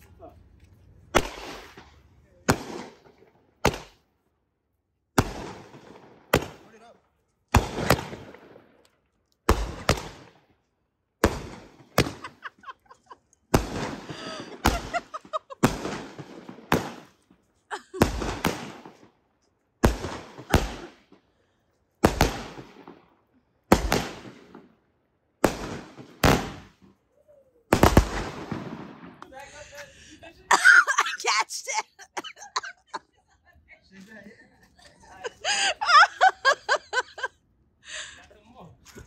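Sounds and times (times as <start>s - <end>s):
fireworks bangs: 1.1s - 4.0s, 5.2s - 6.9s, 7.5s - 8.8s, 9.5s - 10.4s, 11.2s - 19.1s, 19.8s - 21.1s, 22.0s - 23.0s, 23.7s - 24.7s, 25.4s - 26.9s, 27.7s - 29.9s.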